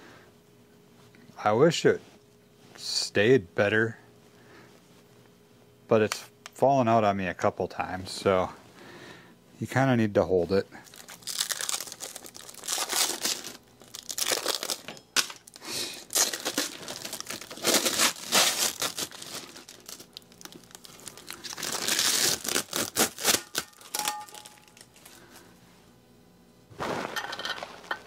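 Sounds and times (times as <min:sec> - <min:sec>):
plastic bag crinkling: 0:10.8 - 0:25.3, 0:26.7 - 0:28.0.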